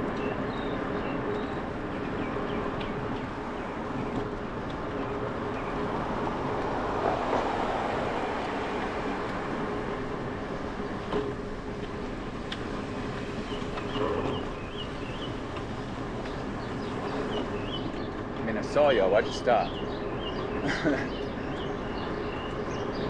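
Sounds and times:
wind on microphone: 0.0 - 18.3
bicycle tyre noise on pavement: 0.0 - 23.0
car passing: 1.9 - 23.0.

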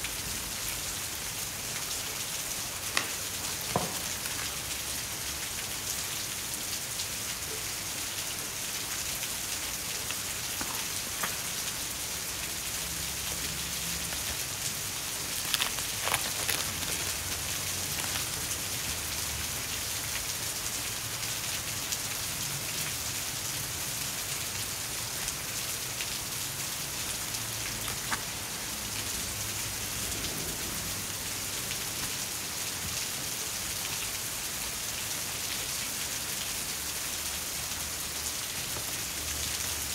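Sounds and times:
plastic packets clicking: 15.3 - 18.4.

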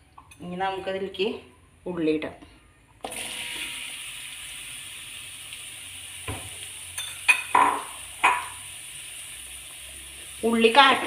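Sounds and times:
shallots sizzling in oil: 3.1 - 11.0.

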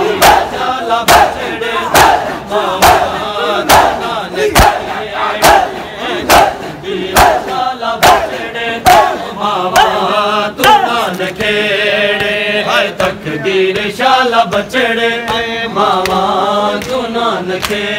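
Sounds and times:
men chanting a lament: 0.0 - 17.9
hands slapping bare chests: 4.6 - 4.8, 5.4 - 5.7, 10.6 - 12.4, 15.3 - 17.8.

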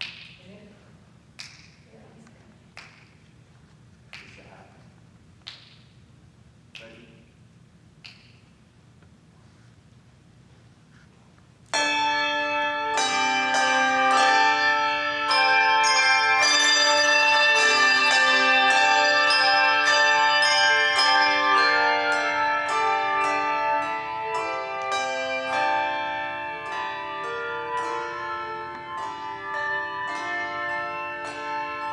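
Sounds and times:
handbell choir playing: 11.7 - 31.9.

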